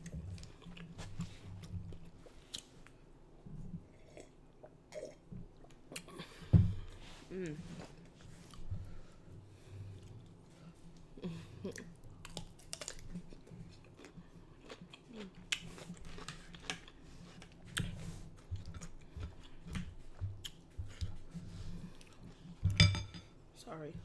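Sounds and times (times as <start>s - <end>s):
chewing and wet mouth sounds: 0.0s - 3.0s, 11.6s - 22.5s.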